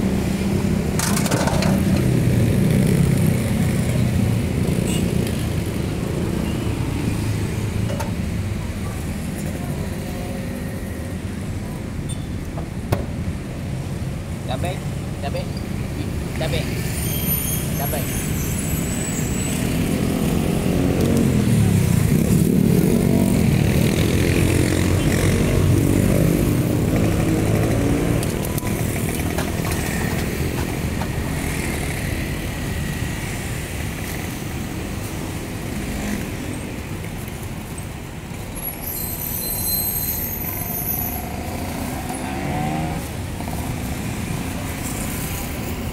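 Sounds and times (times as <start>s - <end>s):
vehicles passing close by: 0.0s - 45.9s
brief high squeal: 17.0s - 19.6s, 38.8s - 41.2s.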